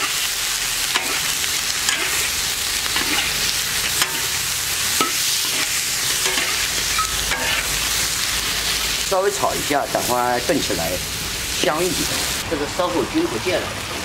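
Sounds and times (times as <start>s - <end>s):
metal spatula scraping a wok: 0.0s - 9.0s
meat sizzling in a wok: 0.0s - 14.0s.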